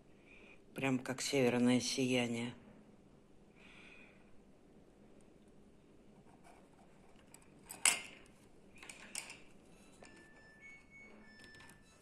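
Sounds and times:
shell pendant set on wooden table: 6.3 - 12.0.

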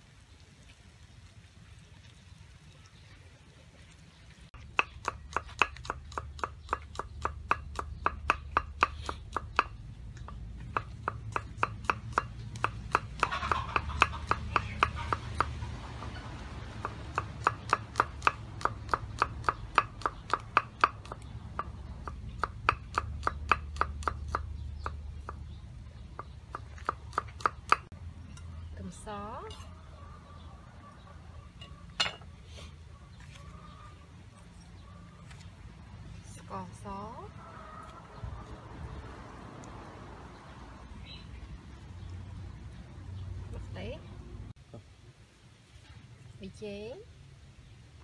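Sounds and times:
knife chopping on wooden board: 4.7 - 15.6.

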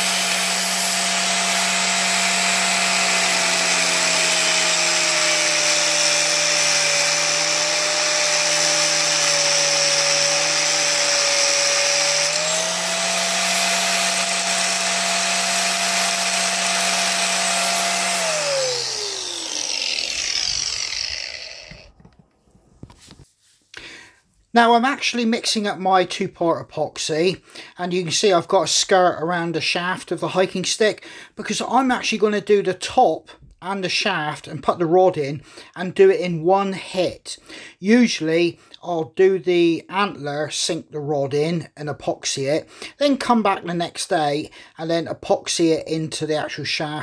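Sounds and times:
angle grinder cutting metal: 0.0 - 22.0
grinder winding down: 0.0 - 22.2.

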